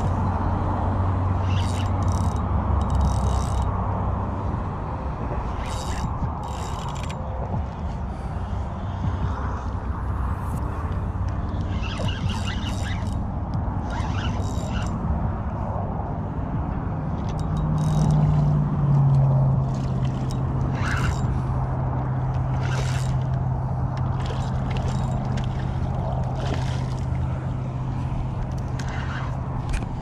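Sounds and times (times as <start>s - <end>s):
fishing reel whirring: 0.0s - 3.8s, 5.3s - 9.3s, 10.3s - 15.7s, 17.2s - 18.6s, 19.6s - 30.0s
splashing: 19.5s - 29.5s.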